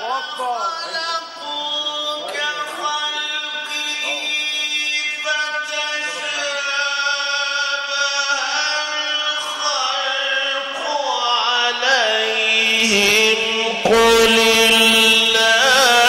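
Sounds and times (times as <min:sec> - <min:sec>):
man reciting melodically: 0:00.0 - 0:16.0.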